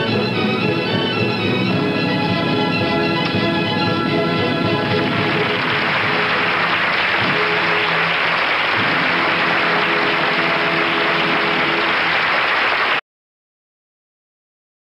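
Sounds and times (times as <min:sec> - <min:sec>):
music playing: 0:00.0 - 0:12.9
applause: 0:04.8 - 0:13.0.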